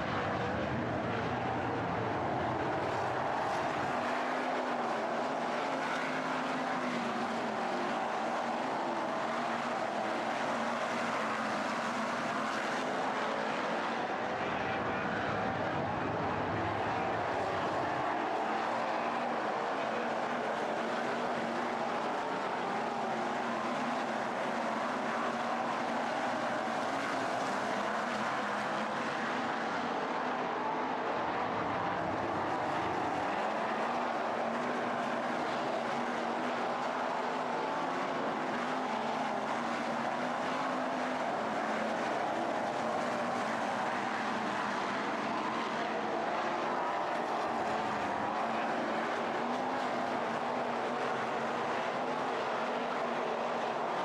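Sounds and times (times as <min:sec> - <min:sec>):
race car engines droning: 0:00.0 - 0:54.0.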